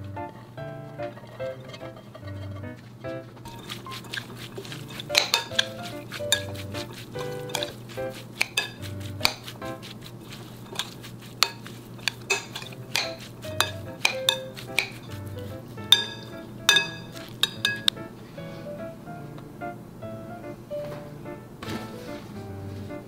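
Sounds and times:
light background music: 0.0 - 11.0, 11.6 - 23.0
metal spoon scraping glass bowl: 1.2 - 2.8, 3.5 - 9.6, 10.2 - 17.9.

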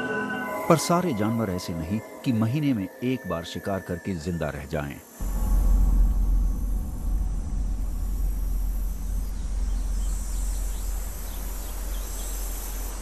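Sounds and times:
faint insect buzz: 1.2 - 13.0
steady low rumble: 5.2 - 13.0
faint bird chirps: 9.2 - 13.0.

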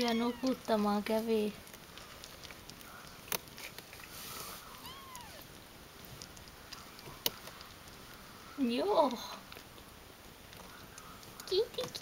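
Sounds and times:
kitten mewing: 0.0 - 0.7, 4.7 - 5.6.

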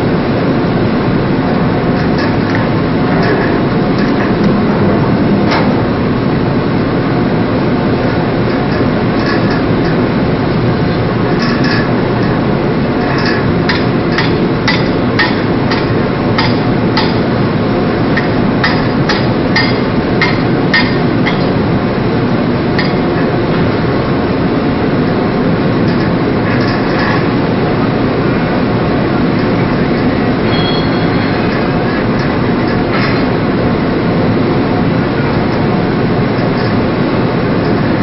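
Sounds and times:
ship rumble: 0.0 - 38.0
hammer striking steel: 13.7 - 17.2.

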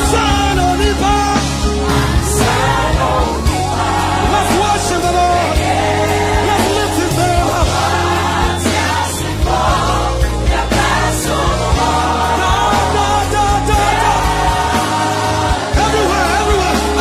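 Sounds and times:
man singing lead: 0.0 - 8.6, 11.9 - 14.8, 15.6 - 17.0
band with drums and keyboards: 0.0 - 17.0
choir singing: 0.0 - 17.0.

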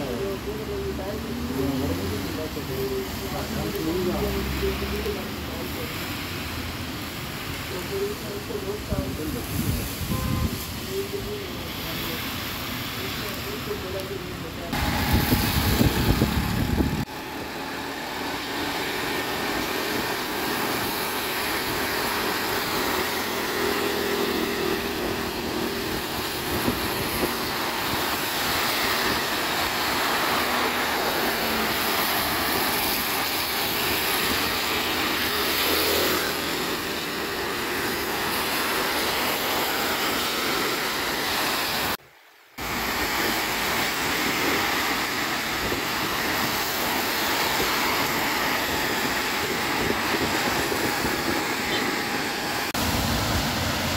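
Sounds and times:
tyres hissing on wet road: 0.0 - 53.9
heavy low rumble: 14.7 - 17.1
wind rushing: 14.7 - 17.6, 42.6 - 53.9.

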